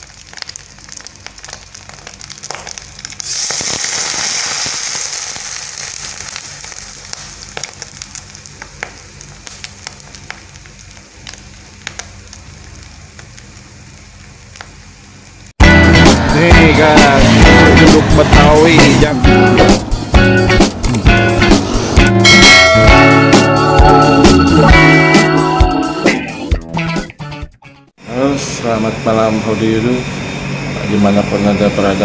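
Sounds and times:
egg frying crackling and popping: 0.0s - 15.6s
loud sizzle: 0.0s - 26.3s, 28.0s - 32.0s.

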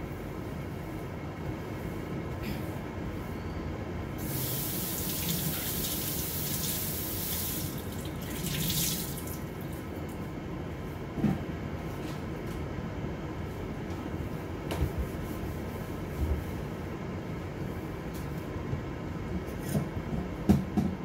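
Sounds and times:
water running: 4.2s - 9.7s.

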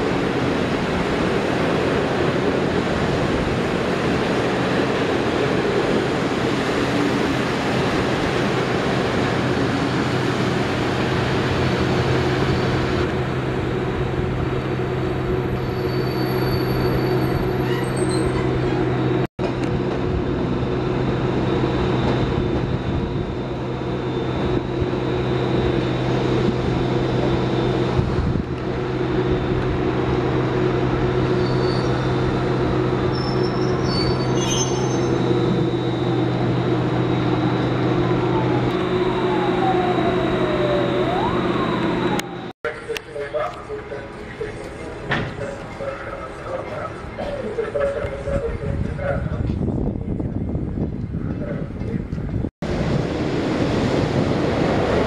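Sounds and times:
train wheels rumbling on rail: 0.0s - 39.4s, 41.8s - 55.0s.

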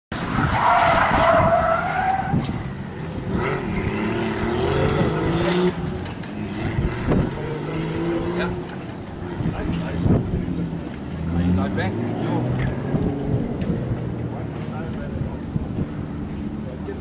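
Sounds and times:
car engine revving: 0.1s - 17.0s
tyres squealing: 0.4s - 10.1s.

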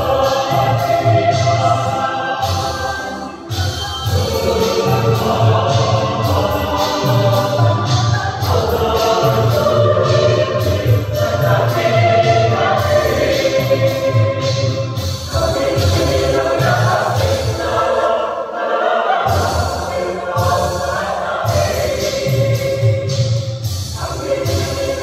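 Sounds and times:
low beat: 0.0s - 18.1s
choir singing in parts: 0.0s - 25.0s.

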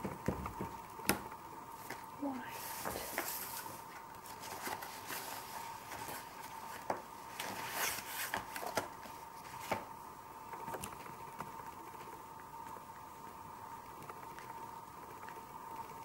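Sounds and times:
scratchy rustles: 2.5s - 8.8s.

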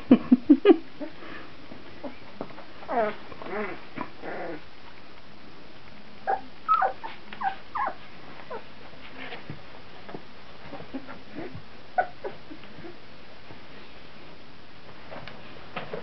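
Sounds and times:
puppies whimpering: 6.3s - 8.7s.

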